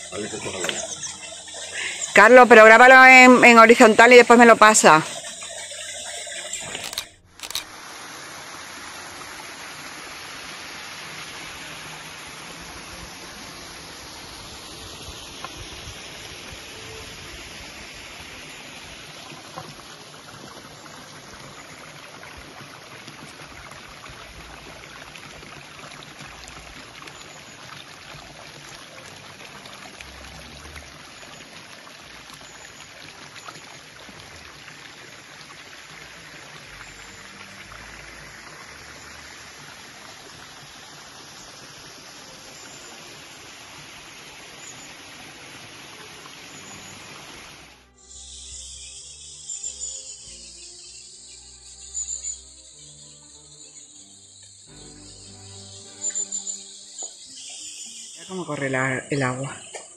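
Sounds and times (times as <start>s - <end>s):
stream water rushing: 0.0s - 47.9s.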